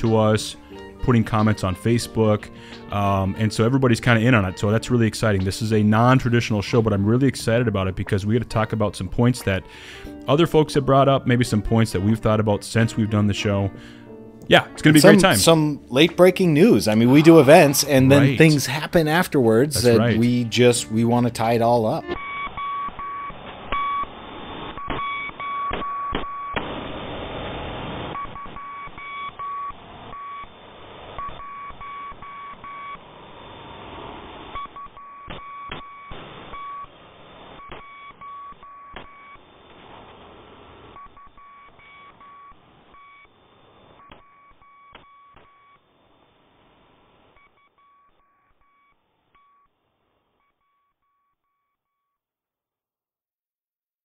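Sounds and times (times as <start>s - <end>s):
electronic beeping: 22.0s - 26.6s, 28.1s - 33.2s
crackly hissing background: 26.6s - 44.3s.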